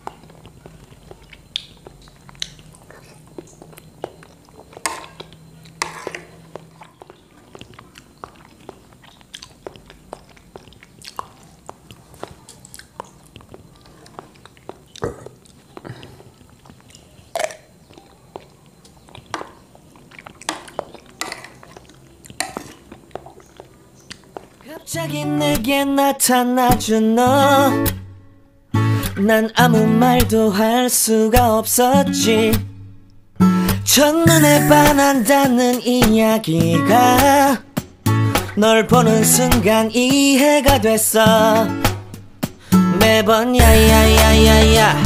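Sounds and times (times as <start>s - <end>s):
wet mouth smacking and chewing: 0.0s - 24.7s
metal spoon scraping plate: 5.8s - 6.4s.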